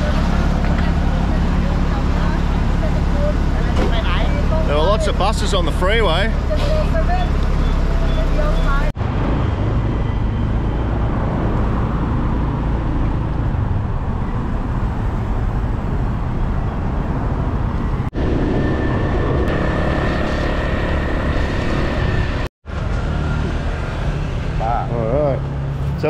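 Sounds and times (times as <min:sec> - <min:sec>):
surrounding traffic: 0:00.0 - 0:26.0
motorcycle engine: 0:18.1 - 0:25.8.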